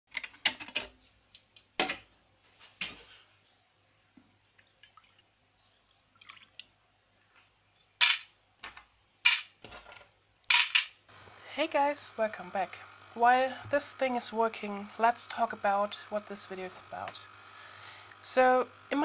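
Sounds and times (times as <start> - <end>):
water pouring into tank: 4.4 - 5.3, 6.0 - 6.7.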